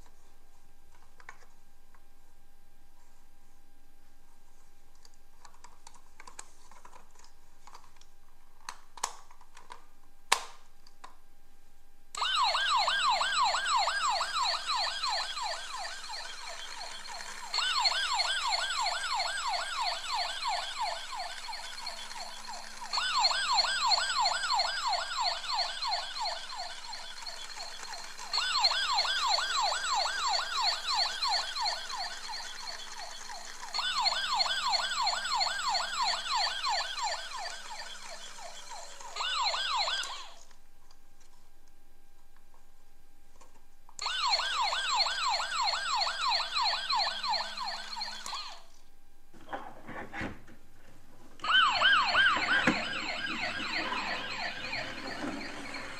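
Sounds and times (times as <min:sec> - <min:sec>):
toy police car siren warbling: 0:12.2 - 0:40.5, 0:44.0 - 0:48.8, 0:51.4 - 0:55.9.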